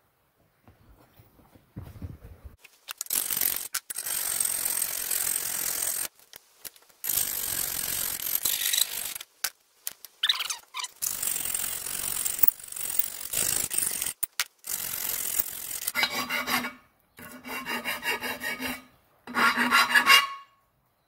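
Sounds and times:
metal file rasping on steel: 0:15.8 - 0:20.6.

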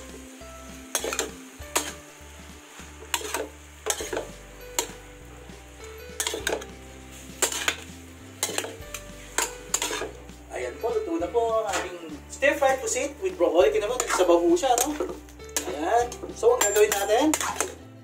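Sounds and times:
food sizzling in a pan: 0:00.0 - 0:18.0
metal spatula scraping a wok: 0:00.8 - 0:10.5, 0:13.7 - 0:17.8.

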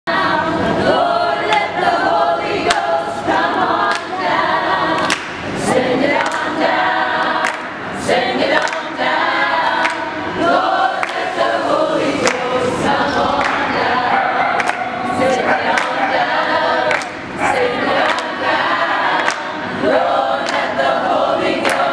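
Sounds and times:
choir singing a cappella: 0:00.1 - 0:21.9
hand claps: 0:02.7 - 0:04.1, 0:05.0 - 0:05.5, 0:06.2 - 0:06.6, 0:07.4 - 0:07.7, 0:08.6 - 0:08.9, 0:09.8 - 0:10.1, 0:11.0 - 0:11.2, 0:12.2 - 0:12.5, 0:13.4 - 0:13.8, 0:14.6 - 0:16.0, 0:16.9 - 0:17.2, 0:18.0 - 0:18.4, 0:19.2 - 0:19.6, 0:20.4 - 0:20.7, 0:21.6 - 0:21.9.

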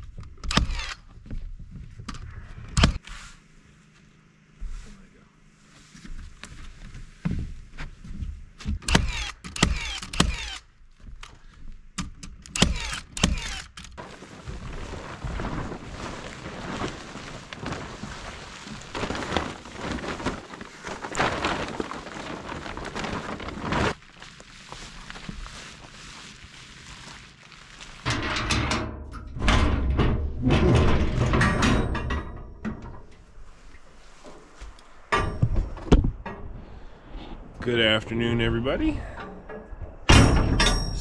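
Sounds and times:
plastic tarp rustling: 0:13.4 - 0:28.7
wooden panels knocking and thudding: 0:35.1 - 0:36.5.

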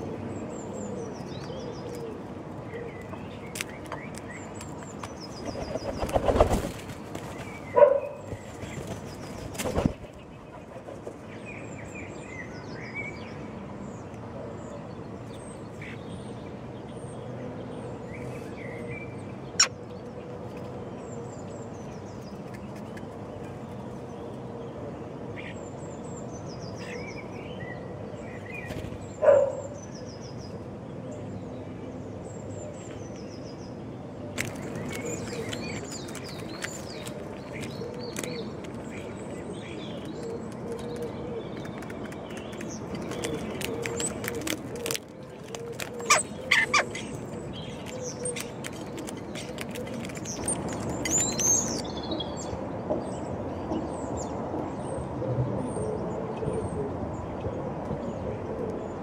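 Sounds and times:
bird wingbeats: 0:05.4 - 0:07.7, 0:08.3 - 0:10.1.

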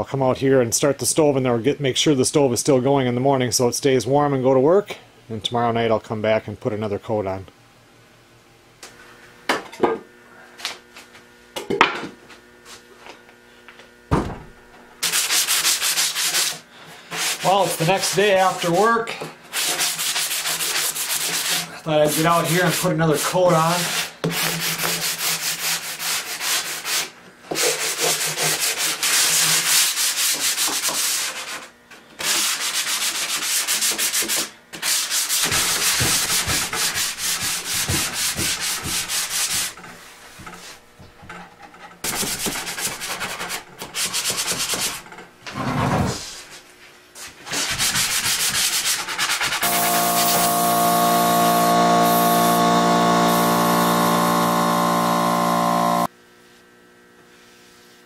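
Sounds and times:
sponge sanding wood: 0:15.0 - 0:18.9, 0:19.5 - 0:40.8, 0:42.0 - 0:45.0, 0:47.4 - 0:56.1
electric motor hum: 0:35.4 - 0:41.2, 0:49.6 - 0:56.2.

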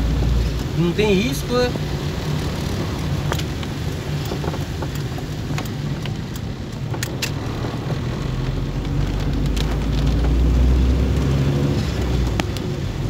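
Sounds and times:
car engine and road hum: 0:00.0 - 0:13.0
raindrops ticking on car roof: 0:00.0 - 0:13.0.

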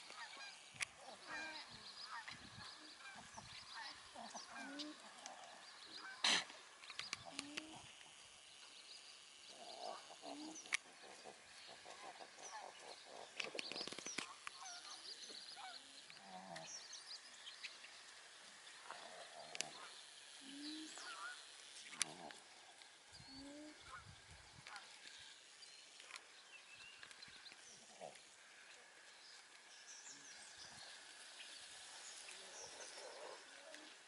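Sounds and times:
small birds chirping: 0:00.0 - 0:34.0
alpacas humming: 0:00.1 - 0:08.3, 0:09.4 - 0:13.5, 0:18.7 - 0:25.4, 0:27.0 - 0:29.1, 0:30.0 - 0:34.0.

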